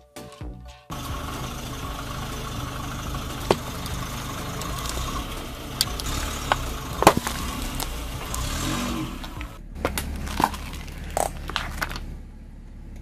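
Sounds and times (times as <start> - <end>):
car engine idling: 0.9 - 13.0
tyre crushing mints and can: 5.8 - 12.1.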